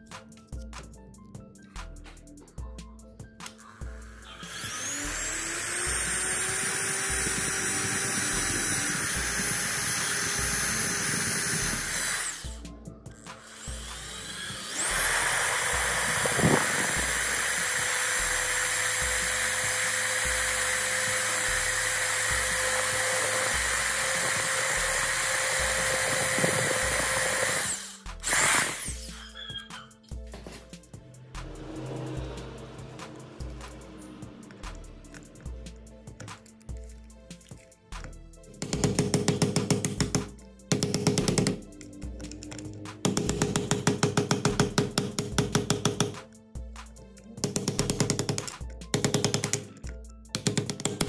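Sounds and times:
background music with steady beat: 0:00.0 - 0:51.0
electric drill whining: 0:03.5 - 0:30.1.

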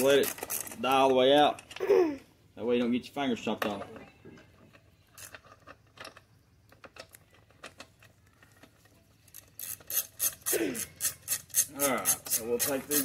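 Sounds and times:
socket ratchet clicking: 0:09.3 - 0:13.0.

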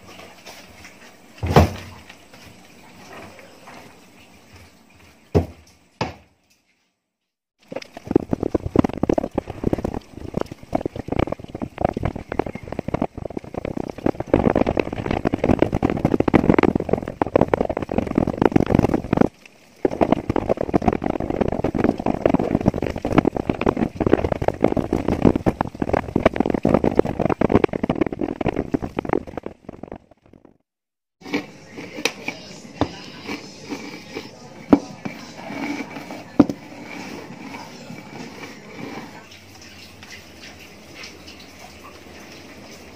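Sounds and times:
bottle rolling and crunching: 0:07.6 - 0:30.6, 0:31.2 - 0:39.3
rice crackling on plastic sack: 0:07.7 - 0:30.2.

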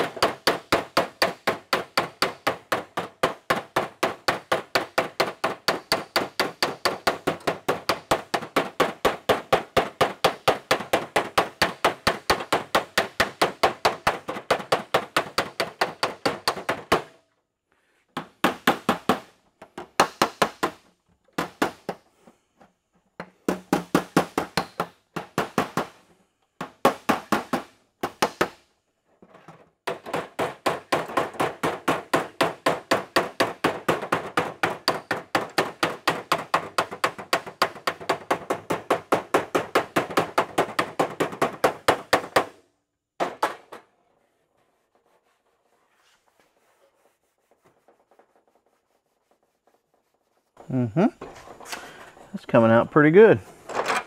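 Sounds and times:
hammer tapping sheet metal: 0:00.0 - 0:17.2, 0:29.9 - 0:42.6.

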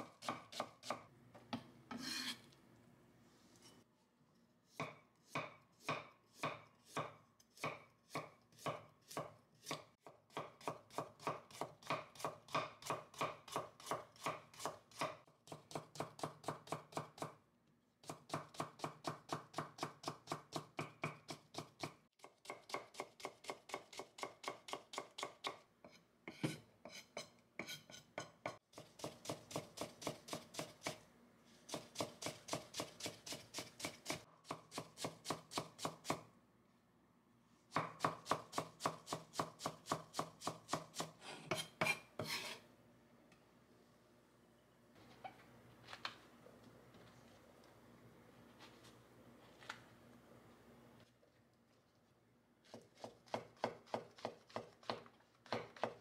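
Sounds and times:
knife chopping on wooden board: 0:04.8 - 0:17.3, 0:37.7 - 0:42.4, 0:52.7 - 0:56.0.

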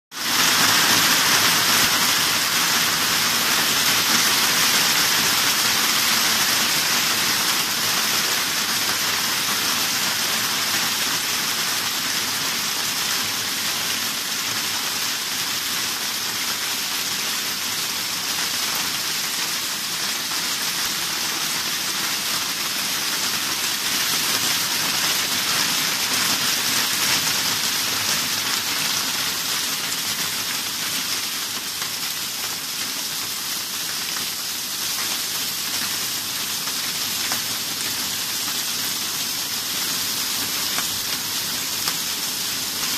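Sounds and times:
hailstones falling heavily: 0:00.2 - 0:14.3, 0:14.9 - 0:42.9.

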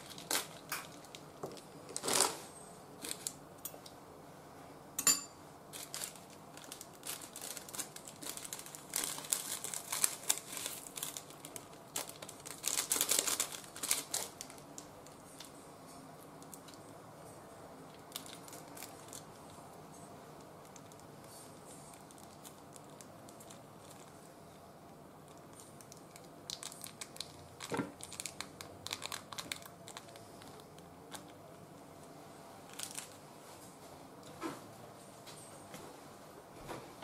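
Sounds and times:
foil sachets tearing and crinkling: 0:00.0 - 0:02.4, 0:03.0 - 0:03.4, 0:05.7 - 0:15.5, 0:17.9 - 0:19.4, 0:20.6 - 0:24.2, 0:25.3 - 0:31.3, 0:32.7 - 0:33.2.

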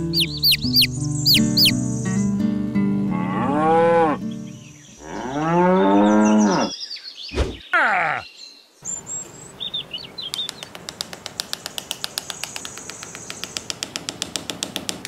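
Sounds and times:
bird chirps: 0:00.0 - 0:02.4, 0:06.0 - 0:10.7
light background music: 0:00.0 - 0:04.8
cow mooing: 0:03.1 - 0:04.2, 0:05.0 - 0:06.7.

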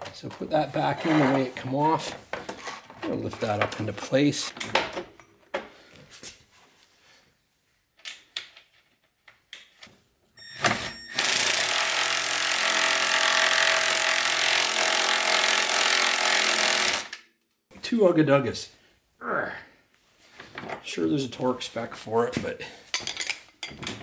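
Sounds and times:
cordless impact driver running: 0:11.2 - 0:17.1.

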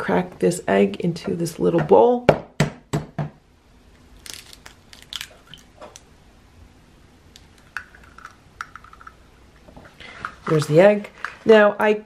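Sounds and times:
eggshell crunching and clicking: 0:04.2 - 0:06.1, 0:07.3 - 0:09.2.

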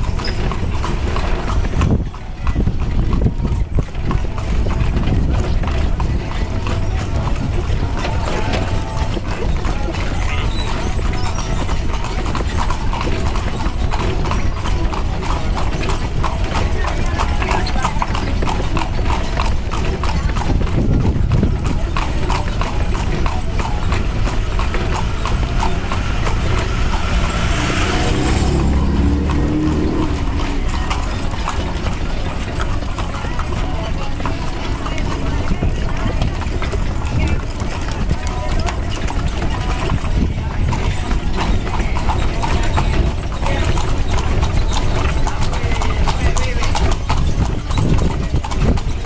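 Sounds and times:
carriage rumbling along street: 0:00.0 - 0:49.0
horse hooves clip-clopping: 0:00.0 - 0:49.0
steady low rumble: 0:23.9 - 0:31.8.

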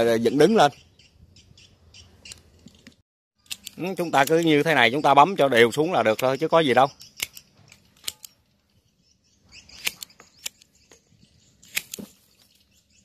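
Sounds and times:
pruning shears snipping twigs: 0:03.4 - 0:04.6, 0:07.0 - 0:08.4, 0:09.7 - 0:10.8, 0:11.6 - 0:12.5.

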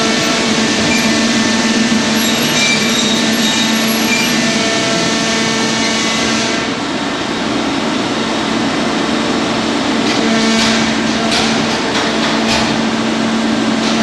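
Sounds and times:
high scraping sounds: 0:00.0 - 0:05.2
bending machine humming: 0:00.0 - 0:14.0.

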